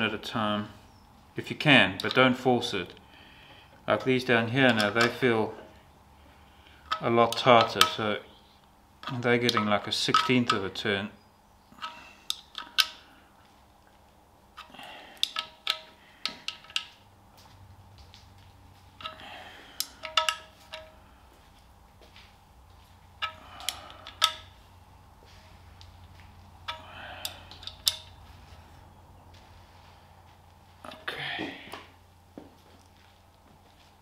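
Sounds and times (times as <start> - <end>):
metal spanner clicking on bolts: 4.6 - 5.3, 6.8 - 8.2, 9.0 - 10.8, 11.8 - 13.1, 14.6 - 17.0, 19.0 - 21.0, 23.2 - 24.6, 26.6 - 28.2.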